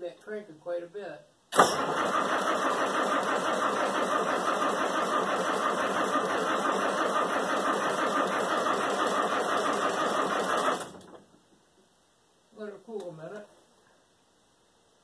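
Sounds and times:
starter motor cranking diesel engine: 1.6s - 11.4s.

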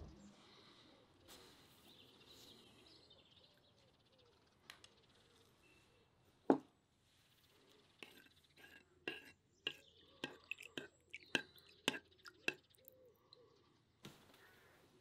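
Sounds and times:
faint bird chirps: 0.0s - 6.4s, 9.6s - 15.0s.

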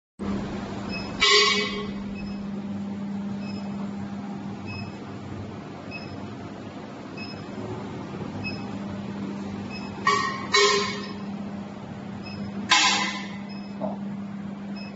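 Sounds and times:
induction heater humming: 0.2s - 14.9s
loud beep: 0.9s - 2.5s, 9.7s - 11.3s, 12.2s - 13.8s.

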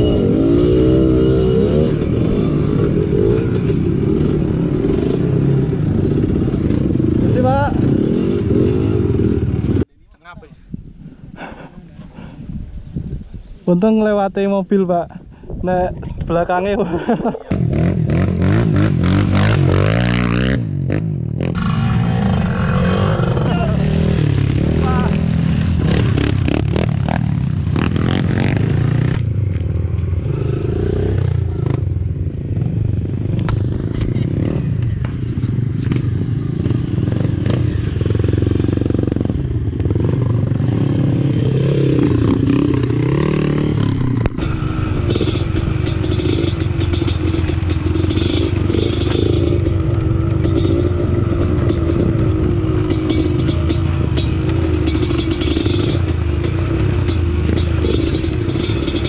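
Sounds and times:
motorcycle engine revving: 0.0s - 9.9s, 17.5s - 59.0s
bike rattling and scraping: 21.4s - 59.0s.

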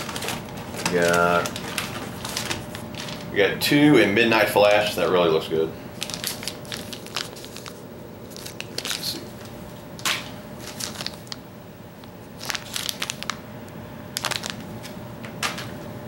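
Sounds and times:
plastic package crinkling: 0.0s - 3.3s, 6.0s - 13.5s, 14.1s - 15.7s.

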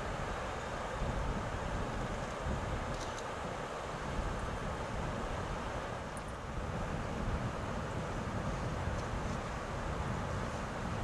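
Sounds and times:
river water rushing: 0.0s - 11.0s
wind buffeting microphone: 0.0s - 11.0s.

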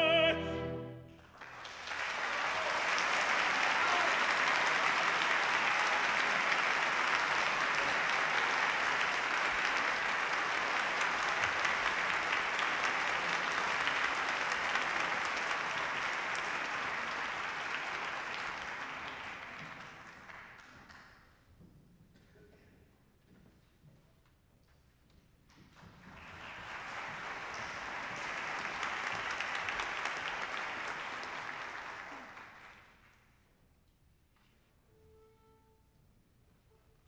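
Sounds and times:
audience applauding: 1.1s - 21.1s, 25.8s - 33.2s.

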